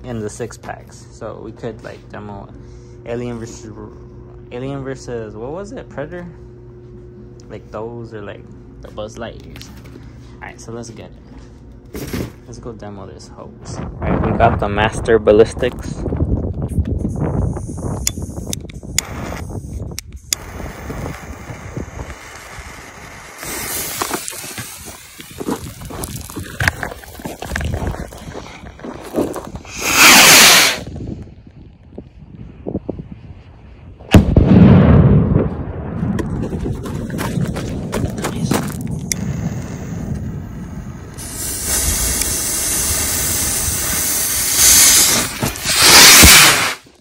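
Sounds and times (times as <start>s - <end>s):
low rumble: 9.6s - 29.8s, 30.8s - 45.9s
wind noise on microphone: 13.6s - 46.7s
firework rocket motor hissing: 17.2s - 28.2s, 29.4s - 31.0s, 38.8s - 47.0s.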